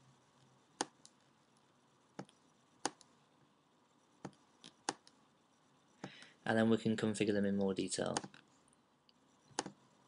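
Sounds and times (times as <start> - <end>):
computer mouse clicking: 0.4 - 3.1, 4.2 - 5.2, 8.1 - 8.4, 9.1 - 9.8.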